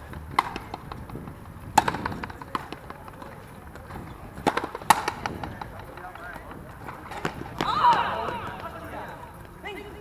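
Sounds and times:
rubber ball pops off racquets: 0:00.3 - 0:02.9, 0:04.4 - 0:05.8.

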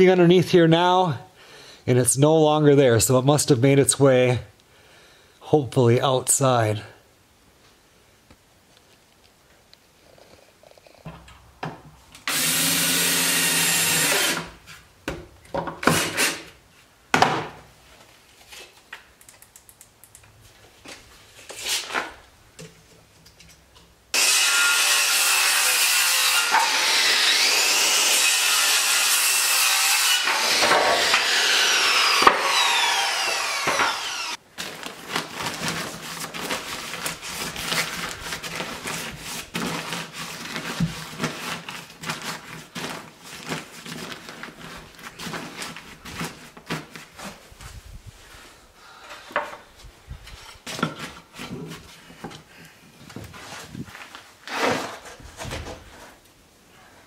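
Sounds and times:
power saw cutting board: 0:12.3 - 0:14.5, 0:24.2 - 0:34.4
power tool burst: 0:12.3 - 0:14.5, 0:26.4 - 0:34.4
tools and wood clattering: 0:30.2 - 0:31.4, 0:32.0 - 0:34.3, 0:49.0 - 0:49.7, 0:50.3 - 0:52.5.

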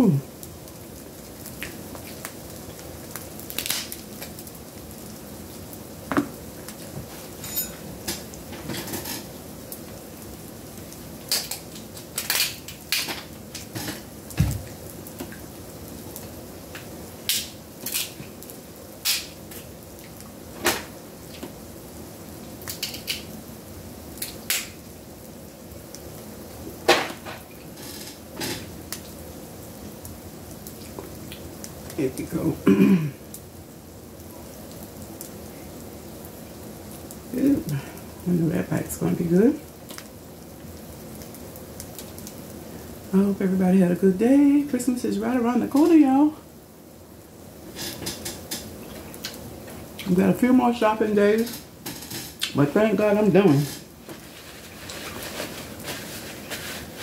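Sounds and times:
crab shells cracking: 0:03.1 - 0:04.3, 0:11.2 - 0:13.7, 0:17.2 - 0:18.2, 0:19.0 - 0:19.7, 0:22.6 - 0:23.3, 0:24.2 - 0:24.8.

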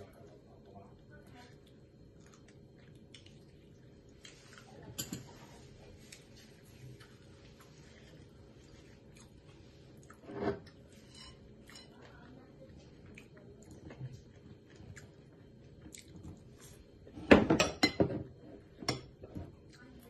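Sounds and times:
crunchy chewing: 0:06.0 - 0:16.8.

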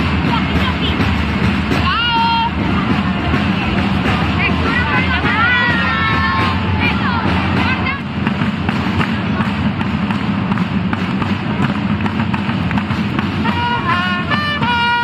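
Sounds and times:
marching drums beating: 0:00.0 - 0:15.0
trumpet holding notes: 0:13.4 - 0:15.0.

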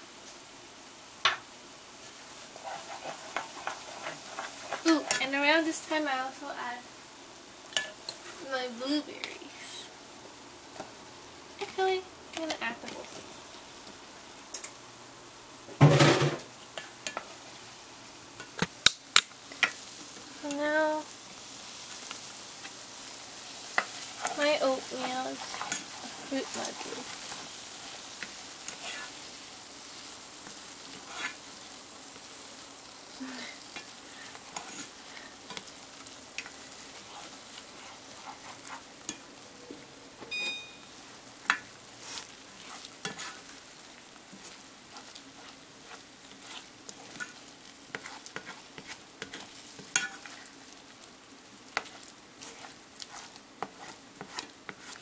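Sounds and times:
porridge simmering: 0:00.0 - 0:55.0
spoon scraping and tapping pot: 0:02.6 - 0:05.3, 0:16.8 - 0:17.3, 0:45.9 - 0:50.4, 0:51.8 - 0:55.0.

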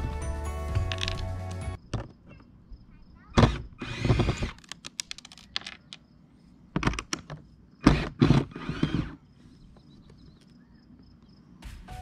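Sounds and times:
loud scraping on plastic: 0:03.4 - 0:04.7.

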